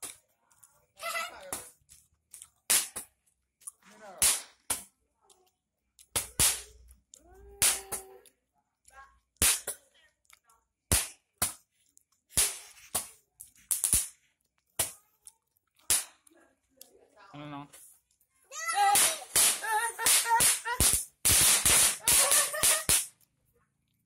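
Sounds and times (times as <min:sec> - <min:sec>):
firecrackers banging: 0:06.2 - 0:06.8, 0:12.3 - 0:14.2, 0:18.7 - 0:23.2.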